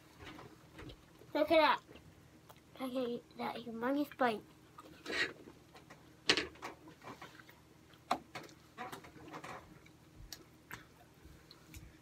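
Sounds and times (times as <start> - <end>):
chewing and mouth sounds: 0.9 - 2.8.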